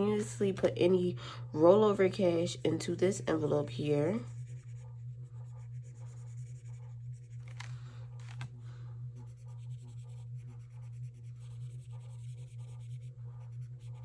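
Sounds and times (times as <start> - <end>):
steady low hum: 0.0 - 14.0
marker scratching on paper: 3.3 - 7.7, 9.2 - 14.0.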